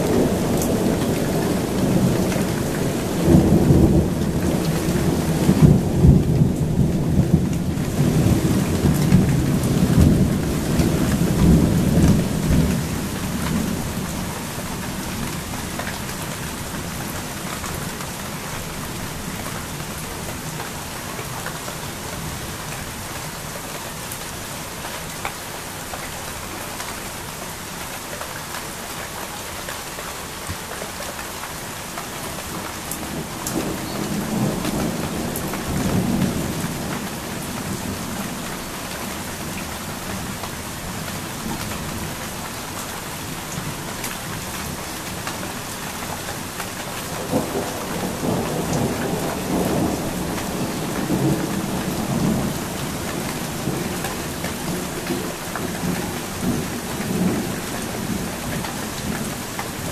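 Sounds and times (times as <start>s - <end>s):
steady rain: 0.0s - 59.9s
thunder rumbling: 47.2s - 59.4s.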